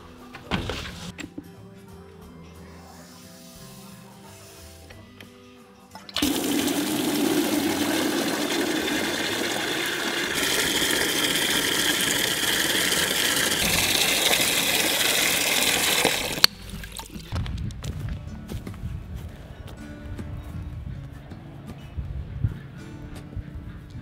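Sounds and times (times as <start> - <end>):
hydrant shutting click: 6.0 - 16.5
water splashing into rubber bucket: 6.1 - 17.3.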